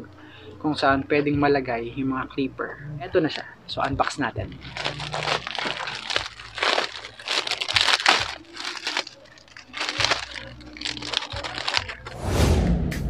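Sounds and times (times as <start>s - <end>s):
plastic packaging crinkling and tearing: 3.3s - 12.2s.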